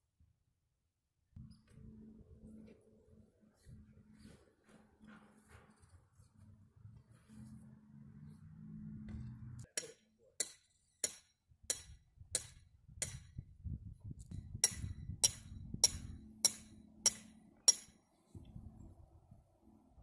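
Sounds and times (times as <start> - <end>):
hammer striking metal tent stake: 9.6 - 13.4, 14.6 - 18.1.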